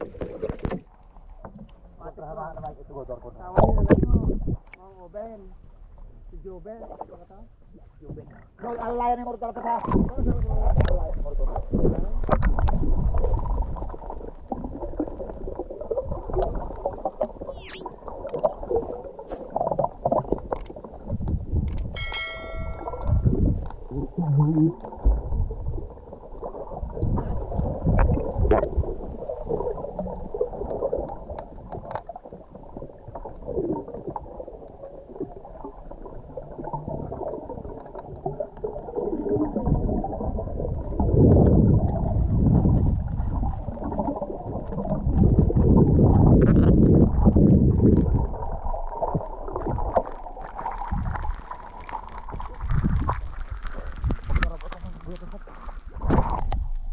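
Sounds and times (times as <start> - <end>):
underwater churning and bubbling: 0.0 - 56.9
brief ringing ding: 22.0 - 23.3.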